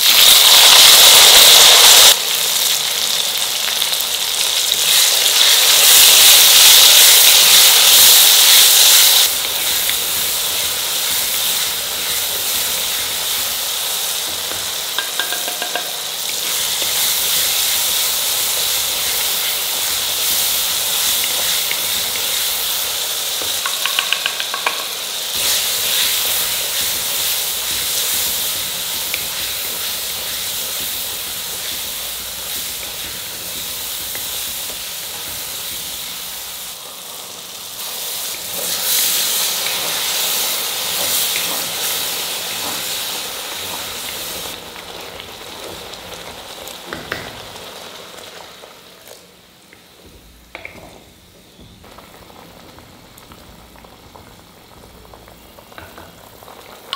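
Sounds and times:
food sizzling in hot oil: 0:00.0 - 0:56.9.

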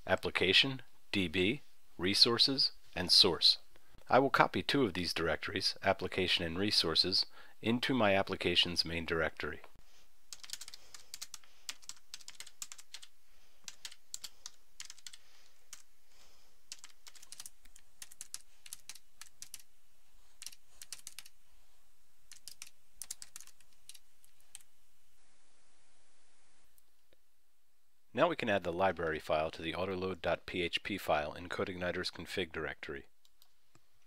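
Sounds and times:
faint steady hiss: 0:00.0 - 0:34.0
keyboard typing: 0:10.3 - 0:15.9, 0:16.7 - 0:19.7, 0:20.4 - 0:21.3, 0:22.3 - 0:24.7.

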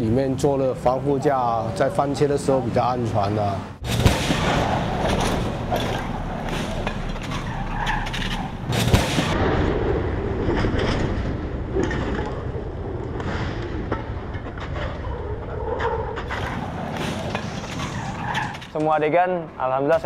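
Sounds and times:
car engines revving: 0:00.0 - 0:13.8, 0:16.2 - 0:18.8
tyres on asphalt: 0:00.0 - 0:20.0
sharp bang: 0:03.8 - 0:10.2.

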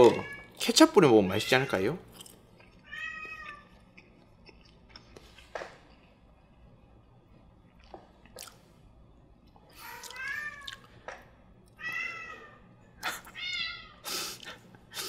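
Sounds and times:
cat meowing: 0:00.0 - 0:00.6, 0:02.8 - 0:03.8, 0:09.8 - 0:10.8, 0:11.8 - 0:12.6, 0:13.3 - 0:14.0.

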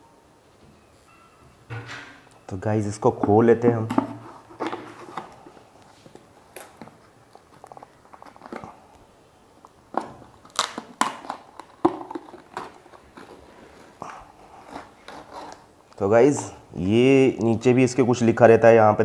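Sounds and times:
plastic seal peeled off: 0:06.1 - 0:08.8, 0:09.6 - 0:13.9, 0:14.6 - 0:16.0
sharp crackles and tearing: 0:09.6 - 0:13.4.

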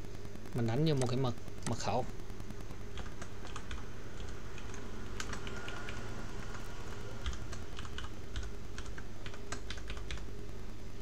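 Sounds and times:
steady low hum: 0:00.0 - 0:11.0
computer keyboard typing: 0:02.5 - 0:10.3.

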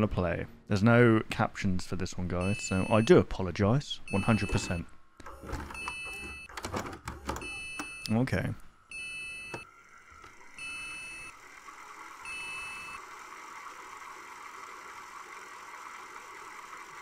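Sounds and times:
electronic warning beeps: 0:02.4 - 0:03.2, 0:04.1 - 0:04.8, 0:05.8 - 0:06.5, 0:07.4 - 0:08.2, 0:08.9 - 0:09.6, 0:10.6 - 0:11.3, 0:12.3 - 0:13.0.

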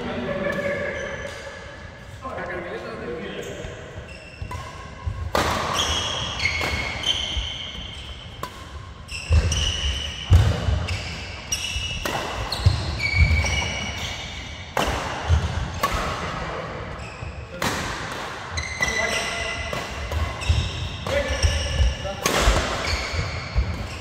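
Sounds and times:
shoe squeaks: 0:03.4 - 0:08.4, 0:09.0 - 0:14.6, 0:16.9 - 0:17.6, 0:18.5 - 0:22.1, 0:22.7 - 0:24.0
racket hitting shuttlecock: 0:04.4 - 0:16.4, 0:17.5 - 0:24.0.

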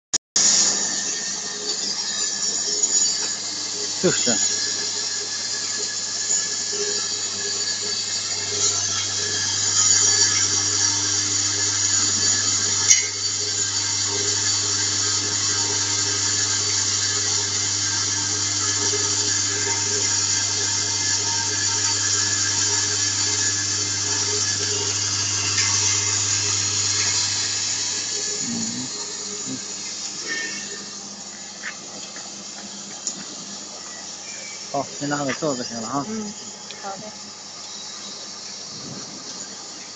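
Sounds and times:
low electromagnetic hum: 0:18.2 - 0:32.0.

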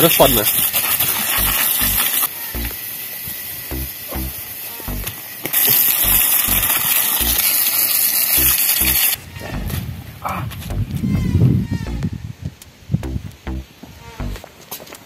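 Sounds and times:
hose spraying onto metal: 0:00.0 - 0:09.2
music with kick-drum beat: 0:01.4 - 0:02.0, 0:02.6 - 0:02.8, 0:03.7 - 0:05.1, 0:06.0 - 0:07.4, 0:08.4 - 0:09.0, 0:10.7 - 0:11.0, 0:13.0 - 0:14.4.

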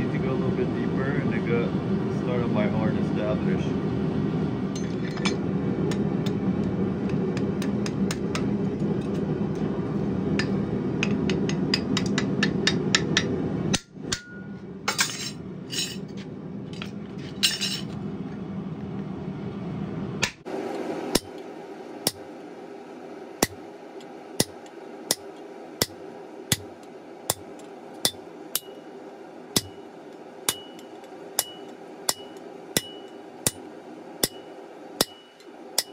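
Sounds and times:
hammer striking steel on anvil: 0:07.3 - 0:08.5, 0:10.4 - 0:16.0, 0:24.4 - 0:26.7, 0:27.3 - 0:28.8, 0:29.6 - 0:29.9, 0:30.5 - 0:35.9
faint metallic ring: 0:14.2 - 0:16.0.

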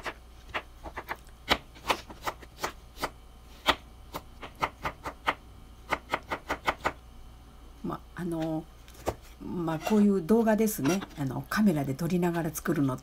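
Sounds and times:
knife chopping on cutting board: 0:00.0 - 0:07.0.

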